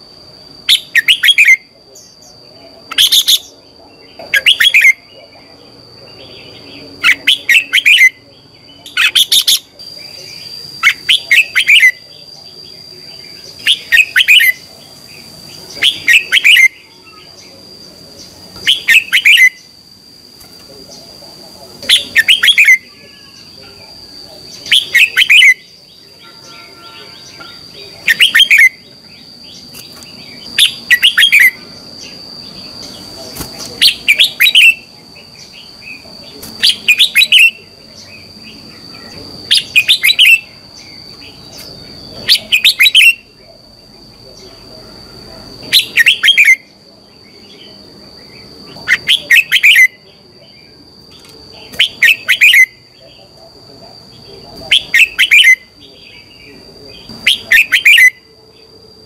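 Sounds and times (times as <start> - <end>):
bird singing whistled phrases: 26.4 - 28.8, 30.6 - 31.6, 33.8 - 34.9, 54.7 - 55.7, 57.3 - 58.3.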